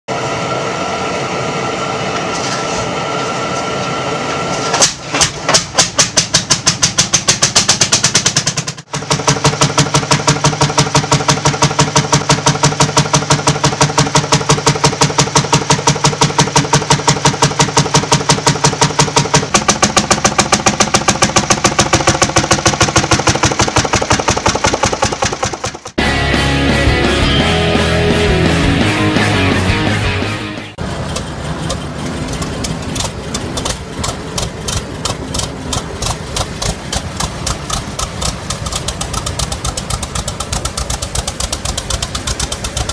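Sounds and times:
tractor engine firing: 4.7 - 26.3, 30.8 - 42.9
music: 26.0 - 30.8.

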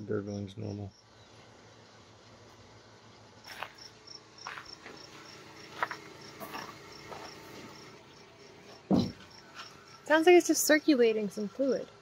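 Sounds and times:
refrigerator humming: 1.4 - 12.0
low thump: 8.9 - 9.2.

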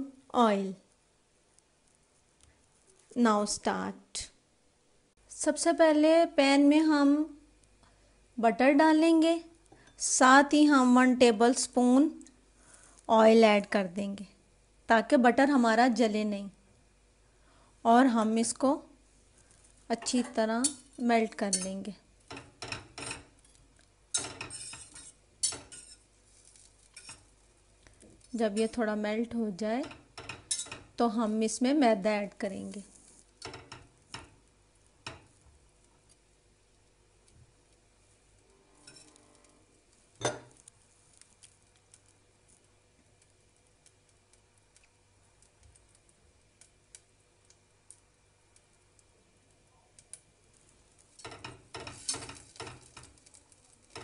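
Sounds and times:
butter crackling in hot oil: 18.5 - 54.0.

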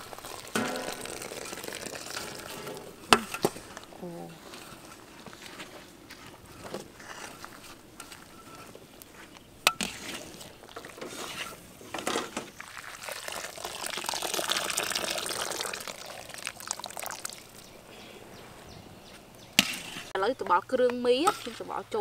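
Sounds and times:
water draining: 0.0 - 3.0, 12.6 - 17.6
water pouring and dripping: 0.0 - 3.9, 9.8 - 17.9.

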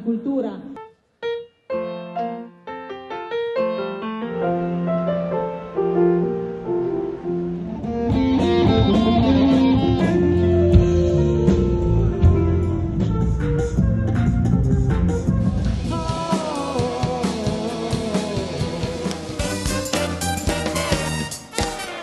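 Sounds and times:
piano melody: 0.8 - 21.6
band with drums bass and guitar: 7.7 - 22.0.

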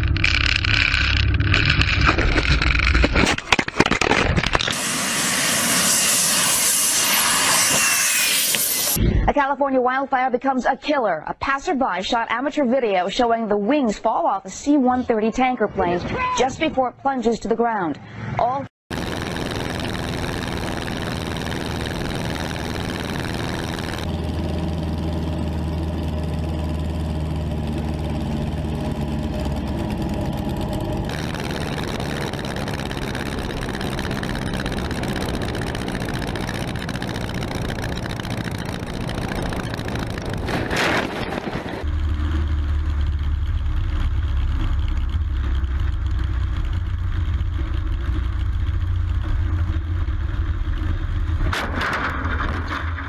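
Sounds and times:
engine noise with rushing hiss: 4.6 - 9.0, 18.9 - 51.4
brief whoosh: 4.7 - 9.2.

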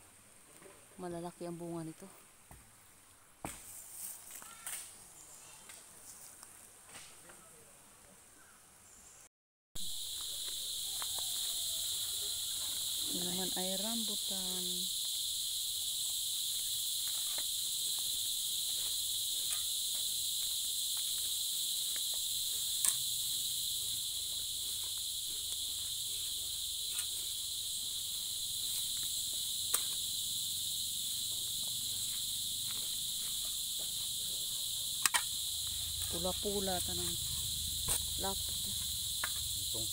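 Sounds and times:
high-pitched insect chorus: 8.4 - 39.9
blade knocking and scraping soil: 16.1 - 27.5, 34.8 - 39.7.

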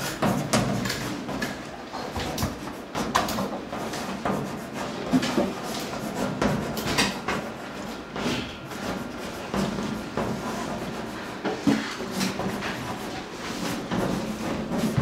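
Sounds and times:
chalk scratching on blackboard: 0.0 - 15.0.

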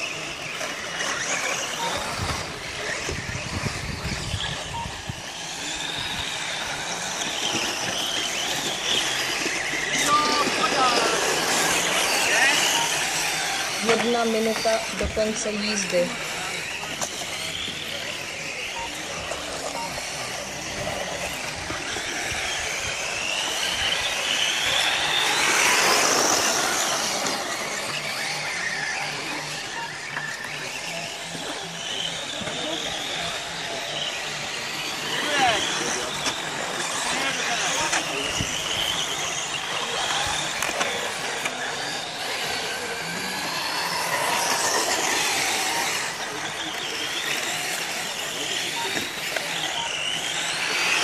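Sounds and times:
remote control car motors whining: 0.0 - 51.0.

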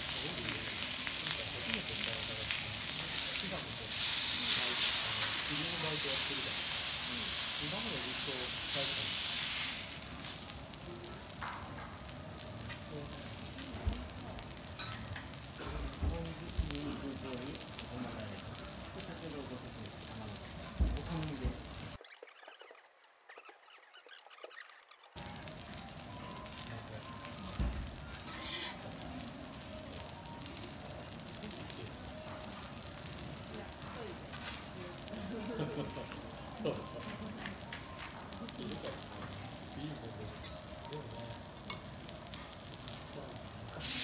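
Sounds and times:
beef sizzling on a griddle: 0.0 - 22.0, 25.2 - 44.0
spatula rubbing on griddle: 28.1 - 28.9.

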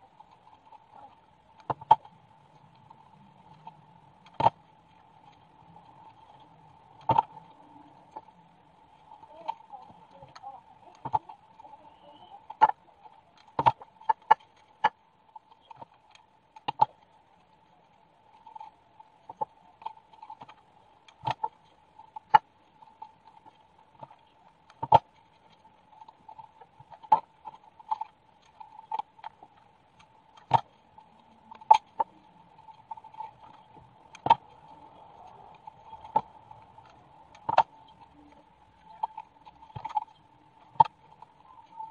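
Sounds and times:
faint high-pitched hum: 0.0 - 14.1.

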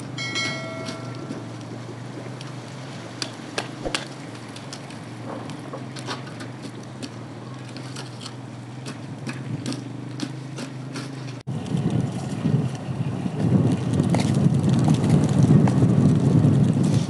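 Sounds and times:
steady low hum: 0.0 - 5.8
light clicks and crackles: 1.5 - 10.3.

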